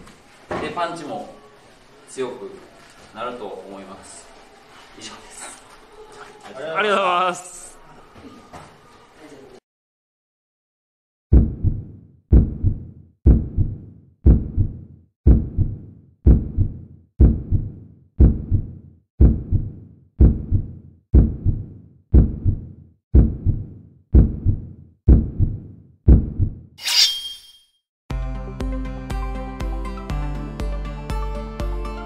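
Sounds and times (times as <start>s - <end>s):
deep thumping hits: 11.3s - 26.6s.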